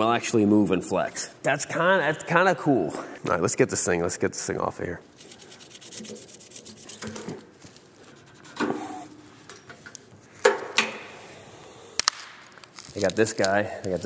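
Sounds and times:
rubbing and scraping of packing: 5.2s - 9.0s.

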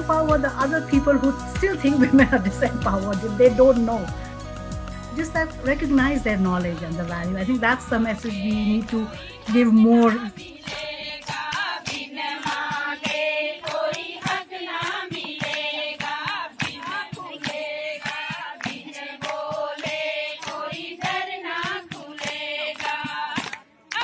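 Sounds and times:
women singing in chorus: 7.6s - 24.0s
hand clapping: 9.5s - 24.0s.

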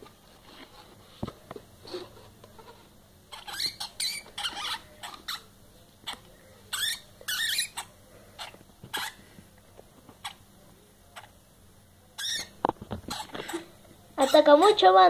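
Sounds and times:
hamsters squeaking: 2.6s - 9.2s, 10.2s - 10.5s, 11.1s - 11.4s, 12.2s - 14.8s.

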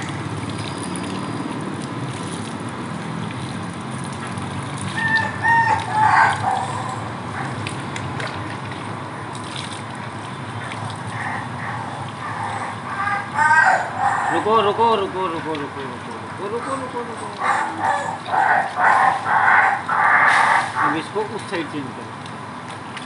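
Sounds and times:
water pouring over dog: 0.0s - 12.2s
rooster crowing: 5.0s - 7.0s.

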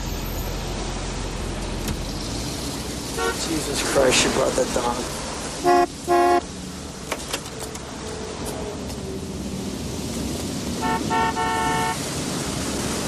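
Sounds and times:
street traffic rumble: 0.0s - 13.0s
car horn honking: 3.2s - 3.4s, 5.6s - 6.4s, 10.8s - 12.0s.

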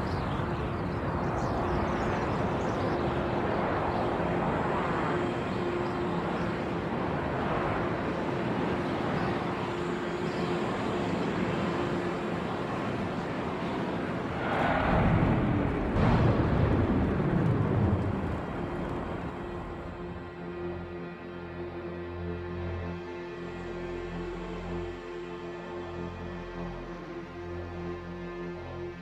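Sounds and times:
roar of burning fires: 14.3s - 20.1s.

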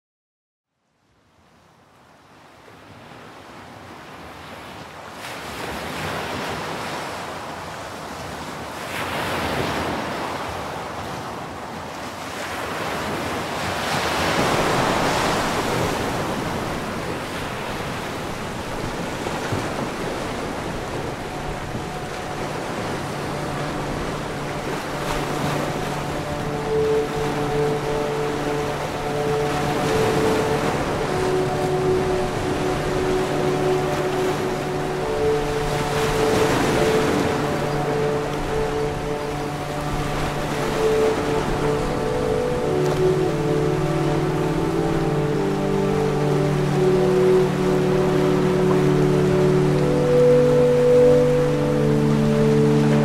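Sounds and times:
sea waves washing in: 3.4s - 53.0s.

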